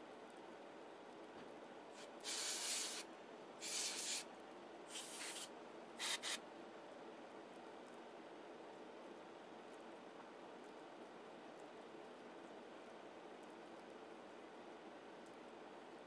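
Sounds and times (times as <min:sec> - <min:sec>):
faint steady background noise: 0:00.0 - 0:16.0
short hissing bursts: 0:02.0 - 0:04.3, 0:04.9 - 0:06.4.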